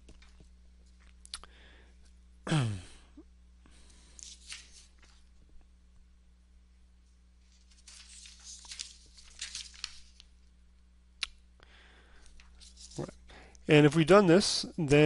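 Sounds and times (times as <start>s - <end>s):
faint rustling and crinkling: 0.0s - 1.2s, 3.8s - 5.7s, 7.0s - 10.6s, 12.1s - 13.6s
low electrical hum: 0.0s - 15.0s.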